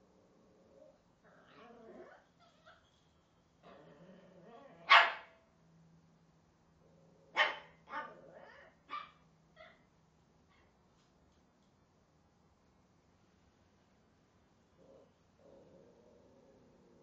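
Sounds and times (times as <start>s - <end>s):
quiet drawn-out sounds: 0.0s - 17.0s
small dog barking: 4.6s - 5.4s, 7.3s - 9.8s.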